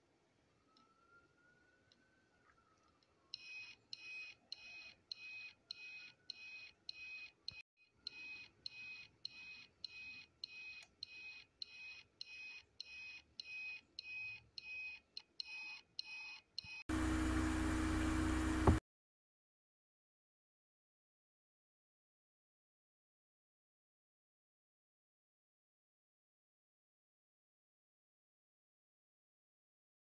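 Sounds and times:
low hum: 16.9s - 18.8s.

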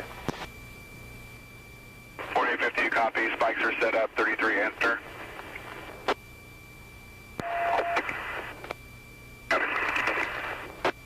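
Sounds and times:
radio static bursts: 2.2s - 6.2s, 7.4s - 8.7s, 9.5s - 11.0s.

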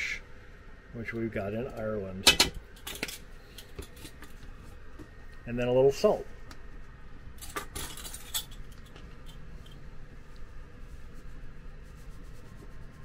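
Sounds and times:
low steady hum: 0.0s - 13.0s
metal measuring spoons rattling: 7.4s - 8.8s.

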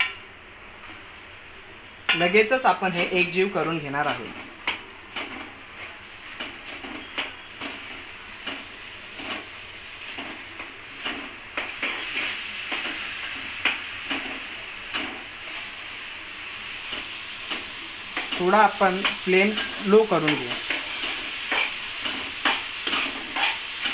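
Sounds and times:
soft sizzle: 0.0s - 23.9s
metal spatula scraping a pan: 19.5s - 23.9s.

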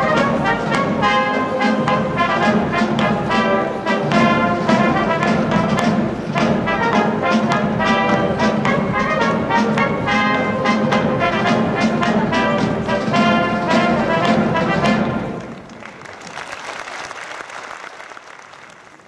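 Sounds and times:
brass band playing: 0.0s - 15.7s
audience applause: 15.2s - 19.0s.

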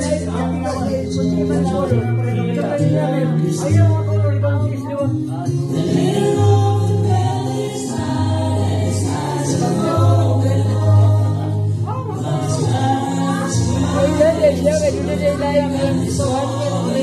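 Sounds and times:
choir singing slow song: 5.7s - 17.0s.

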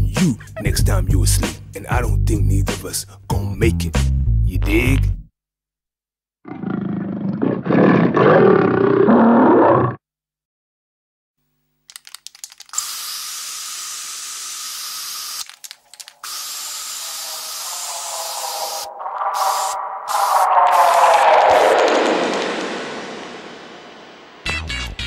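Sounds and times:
music: 0.0s - 5.3s, 24.4s - 25.0s
gorilla roar: 6.5s - 10.0s, 17.0s - 22.7s
aerosol spray paint hiss: 12.7s - 15.4s, 16.2s - 20.8s.

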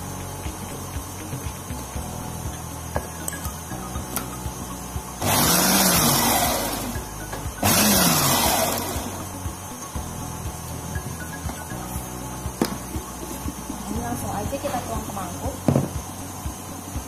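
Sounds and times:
background music: 0.0s - 17.0s
food processor motor pulsing: 3.9s - 17.0s.

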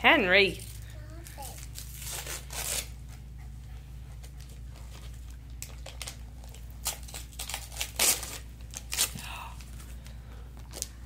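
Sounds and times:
wrapping paper tearing: 0.6s - 3.0s, 4.8s - 9.4s.

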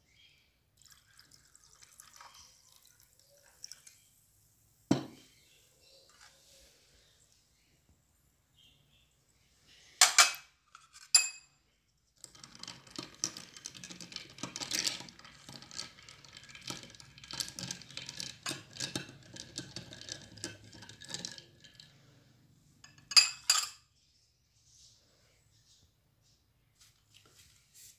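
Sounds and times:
spoon clinking against glass: 11.0s - 11.5s, 22.8s - 23.8s.

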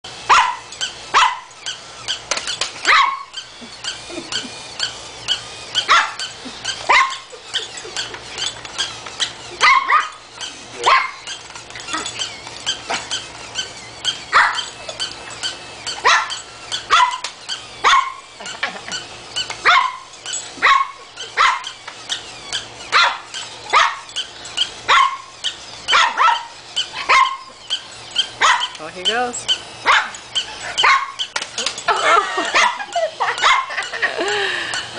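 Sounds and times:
toy dog barking: 0.2s - 34.0s
small dog barking: 0.3s - 1.5s, 2.8s - 3.4s, 5.8s - 6.3s, 6.9s - 7.3s, 9.6s - 10.2s, 10.8s - 11.2s, 14.3s - 14.7s, 16.0s - 18.2s, 19.6s - 21.8s, 22.9s - 24.1s, 24.9s - 25.3s, 25.9s - 27.5s, 28.4s - 28.8s, 29.8s - 30.2s, 30.8s - 31.2s, 32.5s - 33.8s.

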